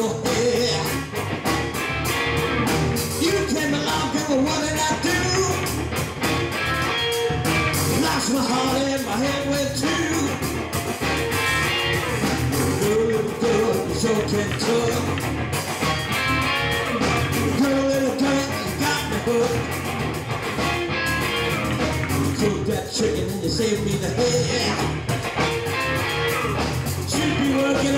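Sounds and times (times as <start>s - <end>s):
man singing: 0.0s - 1.0s, 3.2s - 5.7s, 7.9s - 10.4s, 12.7s - 15.2s, 17.5s - 19.8s, 22.3s - 25.0s, 27.0s - 27.9s
bass guitar: 0.0s - 27.9s
drum kit: 0.0s - 27.9s
electric guitar: 0.0s - 27.9s.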